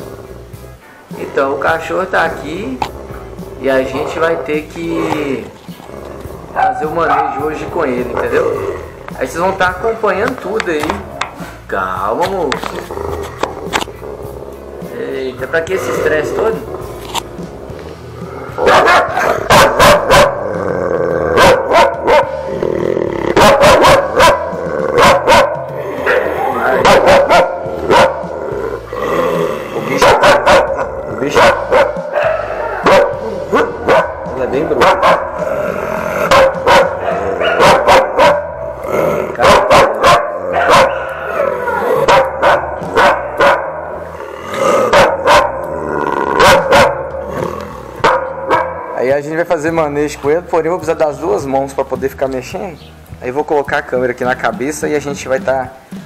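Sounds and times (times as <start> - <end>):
large dog barking: 1.9 - 9.3, 18.4 - 20.6, 21.2 - 22.5, 23.3 - 28.9, 29.8 - 49.0.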